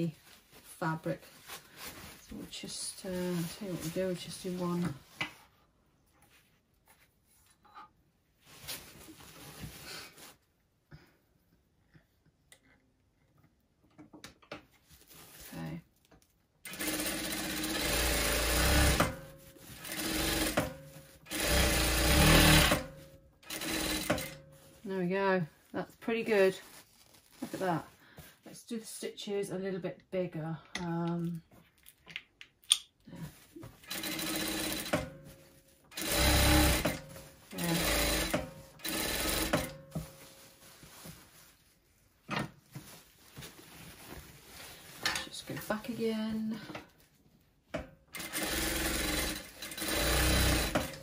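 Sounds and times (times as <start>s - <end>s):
sewing machine stitching: 16.7s - 24.5s, 33.8s - 40.1s, 48.1s - 51.0s.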